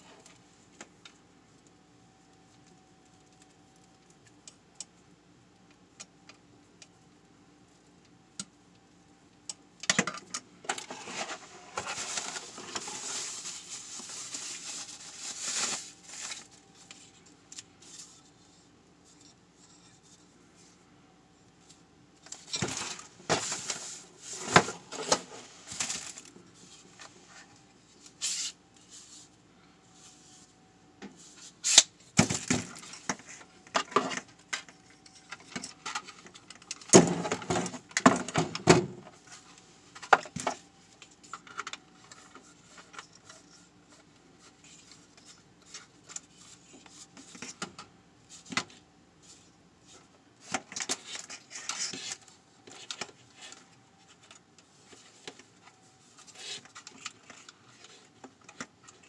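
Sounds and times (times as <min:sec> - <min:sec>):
faint steady hum: 0:00.0 - 0:59.0
packaging rustling: 0:10.8 - 0:17.1.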